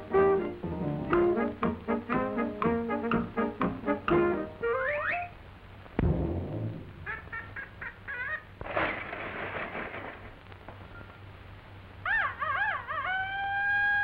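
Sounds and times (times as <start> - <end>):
cartoon animal whines: 4.6 - 5.4, 12.0 - 14.0
cartoon squeaky chirps: 4.6 - 5.4
cartoon animal howl: 12.0 - 14.0.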